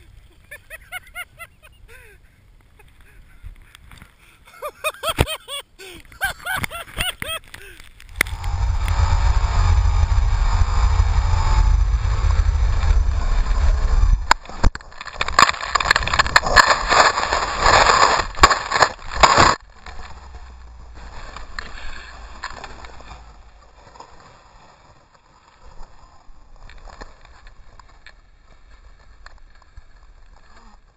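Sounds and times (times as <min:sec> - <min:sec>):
wind and snow battering microphone: 0:00.0 - 0:30.9
sweeping pitch rises and falls: 0:08.2 - 0:14.6.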